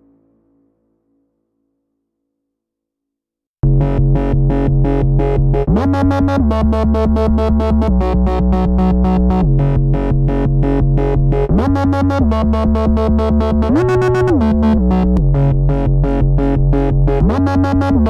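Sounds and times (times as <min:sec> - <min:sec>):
held low synth notes: 0:03.6 - 0:18.0
pulsing synthesizer: 0:03.6 - 0:18.0.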